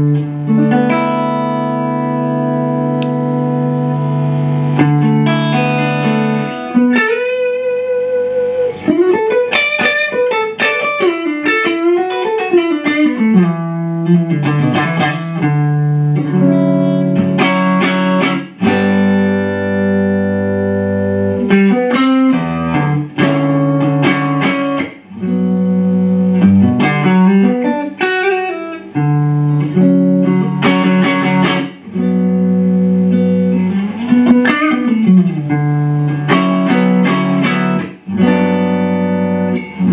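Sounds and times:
electric guitar lead phrase: 0.0s - 39.9s.

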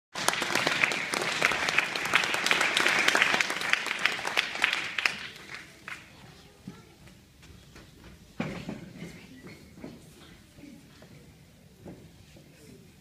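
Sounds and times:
audience applauding: 0.2s - 6.1s.

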